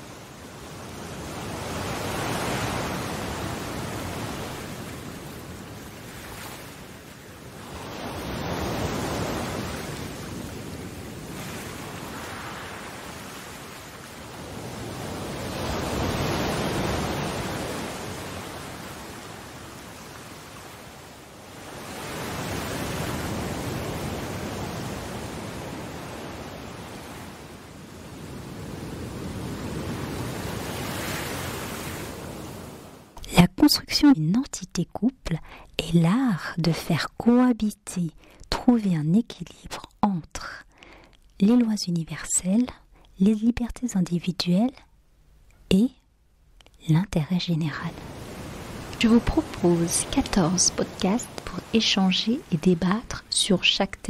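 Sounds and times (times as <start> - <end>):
ocean waves washing in: 0.0 - 33.2, 47.5 - 54.0.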